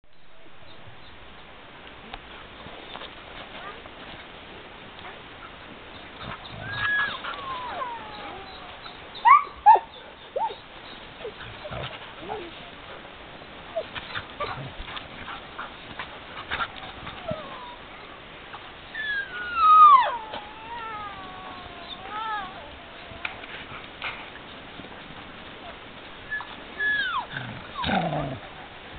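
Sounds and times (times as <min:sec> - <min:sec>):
dog whining: 0:06.2 - 0:10.6, 0:16.6 - 0:17.9, 0:18.9 - 0:23.5, 0:26.3 - 0:28.4
dog howling: 0:06.6 - 0:10.6, 0:19.0 - 0:23.5
dog yipping: 0:09.2 - 0:10.6.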